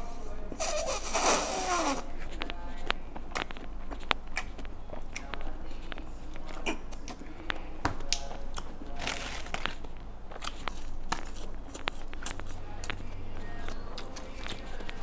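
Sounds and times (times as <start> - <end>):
wet chewing clicks and smacks: 2.8 - 7.3, 9.5 - 15.0.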